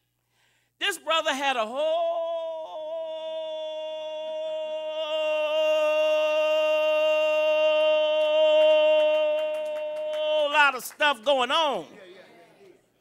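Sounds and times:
preacher chanting long sung note: 2.0 - 11.0.

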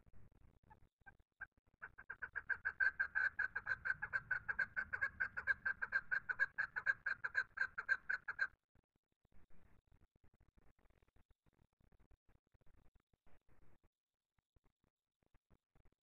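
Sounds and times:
partridge calling: 1.9 - 8.5.

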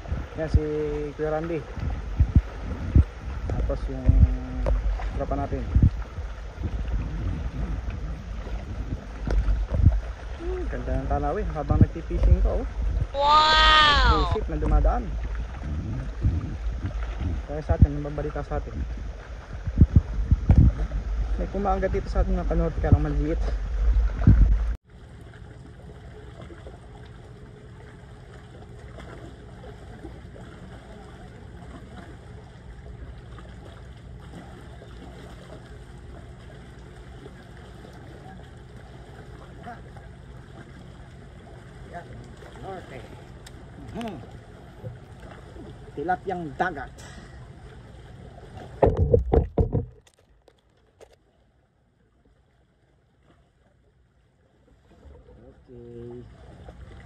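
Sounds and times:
wind: 0.0 - 57.0
microphone handling knocks and rustles: 1.8 - 8.0, 8.6 - 10.2, 18.7 - 21.4, 22.7 - 24.8, 48.7 - 50.4
small waves on rocky shore: 2.4 - 15.4.

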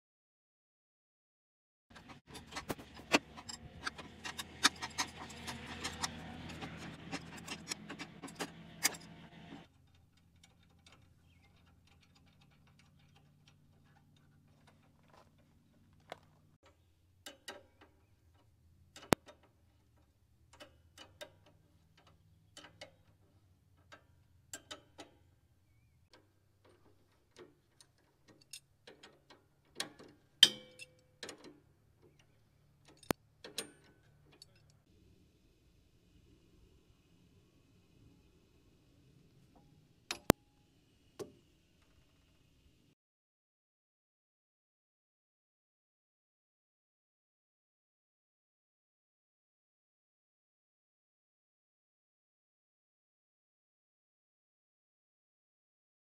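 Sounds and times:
metallic clicks and taps: 23.8 - 25.2.

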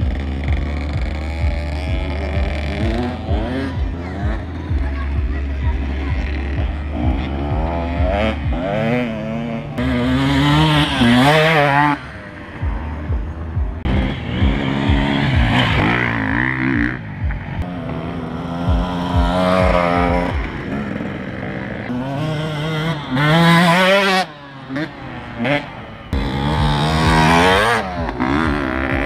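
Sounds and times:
dirt bike engines revving: 0.0 - 29.0.

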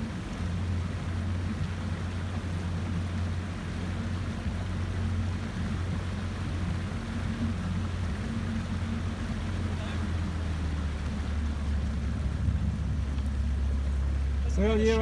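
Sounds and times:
motorboat engine humming: 0.0 - 15.0
water noise: 0.0 - 15.0
wind: 0.0 - 15.0.

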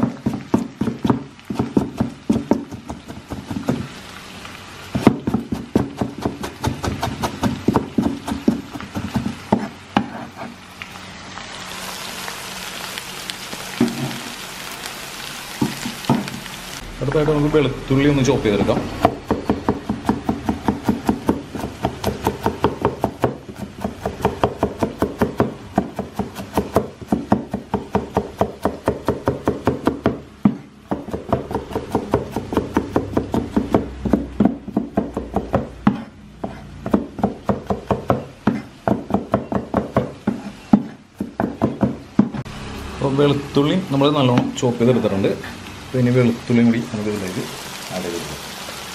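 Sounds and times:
cleaver chopping on wooden board: 0.0 - 3.9, 5.0 - 10.3, 19.0 - 42.5.

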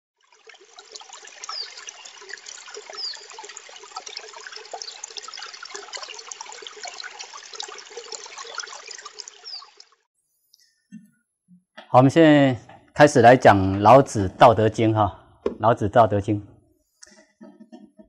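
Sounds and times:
water trickling and bubbling: 0.2 - 10.1.

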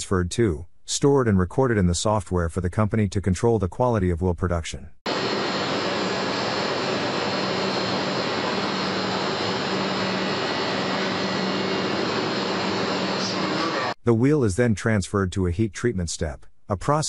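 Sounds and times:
industrial machinery rushing: 5.1 - 14.0.

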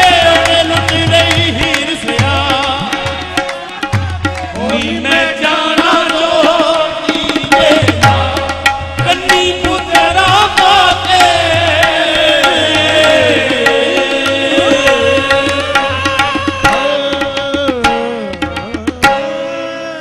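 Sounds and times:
harmonium: 0.0 - 20.0
tabla strokes: 0.0 - 20.0
singers holding sliding notes: 10.6 - 18.7.

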